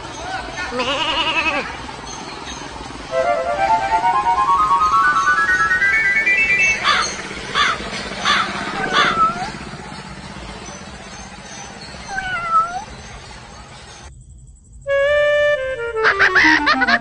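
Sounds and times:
animal calls: 0:00.6 - 0:02.2, 0:06.8 - 0:10.0, 0:10.6 - 0:13.2.

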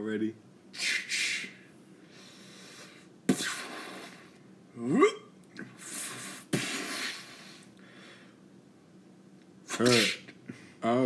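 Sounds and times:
mouth blaster hisses: 0:00.7 - 0:01.6, 0:02.2 - 0:04.4, 0:05.8 - 0:07.7, 0:09.7 - 0:10.3.

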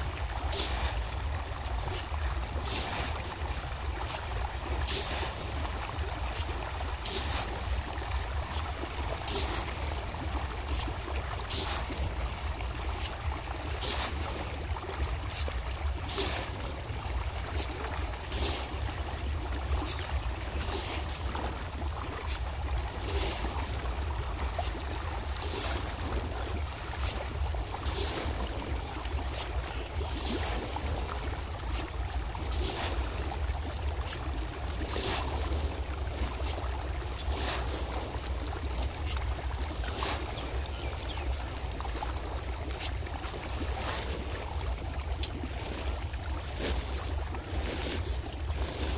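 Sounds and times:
fish splashing at water surface: 0:00.0 - 0:40.7
watery hiss: 0:00.4 - 0:12.2, 0:22.0 - 0:38.3.

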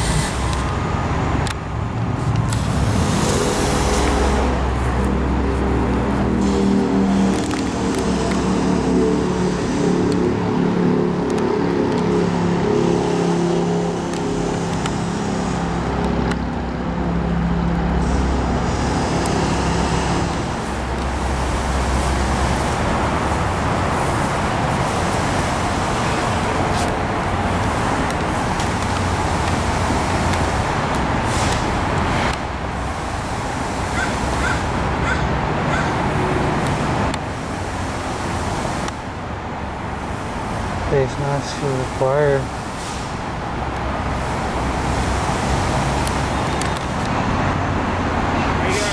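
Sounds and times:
road traffic: 0:00.0 - 0:48.9.

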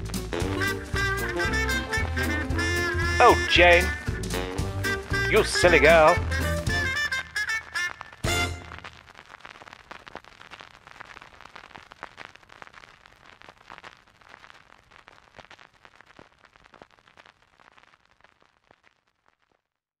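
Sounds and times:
firework-like crackling and popping: 0:00.0 - 0:20.0.

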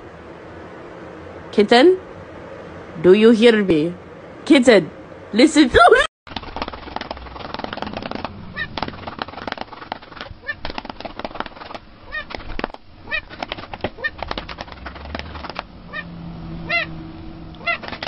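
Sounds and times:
cat calling: 0:07.8 - 0:09.4, 0:10.3 - 0:10.9, 0:11.6 - 0:18.0.

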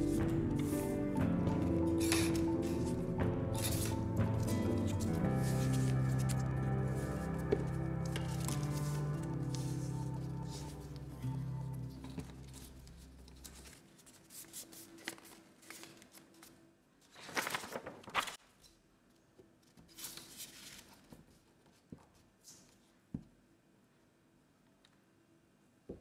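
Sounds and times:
paper rustling and crinkling: 0:00.0 - 0:18.7, 0:19.8 - 0:21.9.

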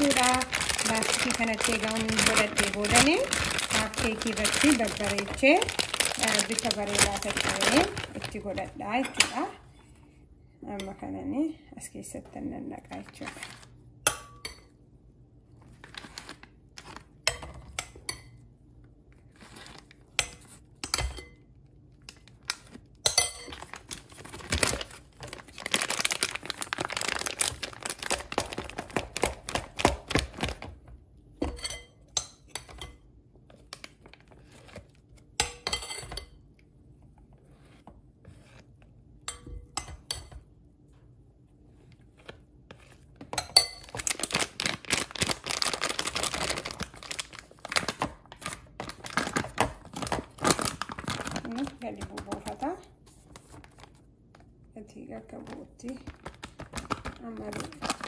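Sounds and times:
plastic bag crinkling: 0:00.0 - 0:09.0, 0:23.5 - 0:30.8, 0:43.8 - 0:54.0, 0:55.4 - 0:58.0.

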